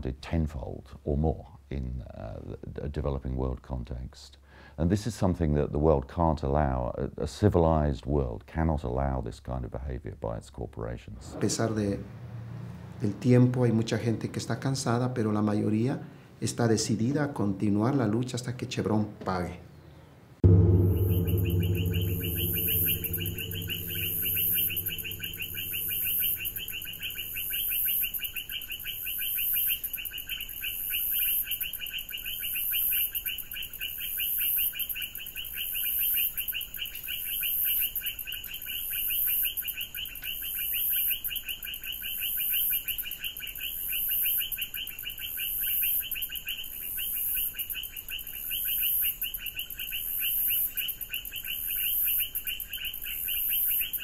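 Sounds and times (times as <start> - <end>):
high shrill hum: 20.4 - 27.5.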